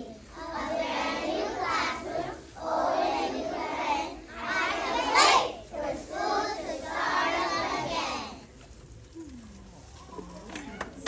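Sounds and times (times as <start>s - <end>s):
children singing together: 0.0s - 8.5s.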